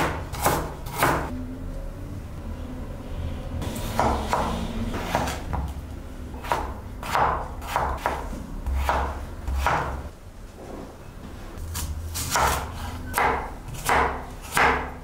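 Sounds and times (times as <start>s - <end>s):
knife chopping on wooden board: 0.0s - 1.3s, 4.0s - 5.7s, 6.4s - 10.0s, 11.7s - 15.0s.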